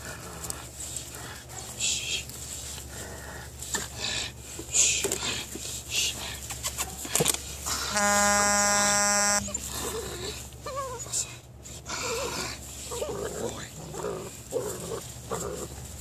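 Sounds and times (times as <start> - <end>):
puppy scuffling and rustling: 0.1 - 7.8, 9.5 - 16.0
loud steady buzzing tone: 7.7 - 9.6.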